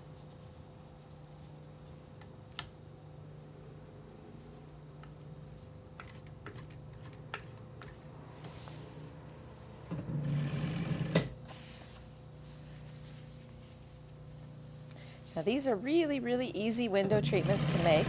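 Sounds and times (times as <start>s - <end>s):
sewing machine stitching: 10.0s - 11.4s, 17.1s - 18.0s
steady low hum: 11.3s - 18.0s.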